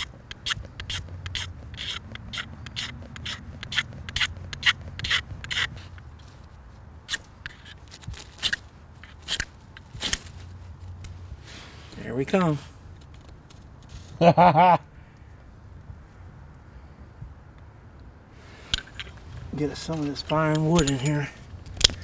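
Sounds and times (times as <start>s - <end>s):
knife scraping fire-starter rod: 0.0s - 6.5s, 7.1s - 10.4s, 18.4s - 22.0s.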